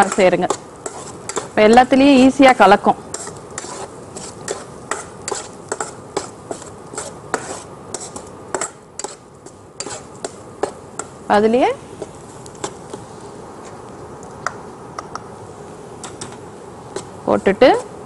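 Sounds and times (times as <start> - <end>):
spatula scraping frying pan: 0.0 - 1.9, 3.1 - 11.1.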